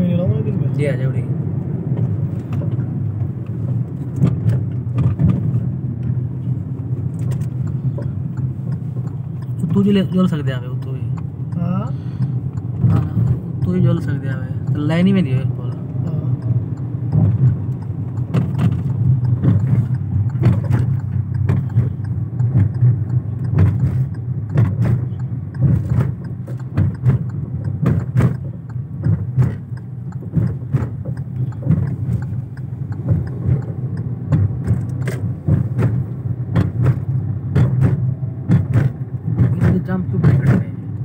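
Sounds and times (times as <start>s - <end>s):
car road and engine rumble: 0.0s - 41.0s.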